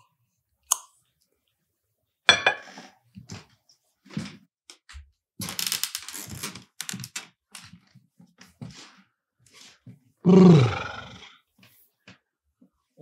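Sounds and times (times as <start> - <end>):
loud low groan: 10.3 - 11.2.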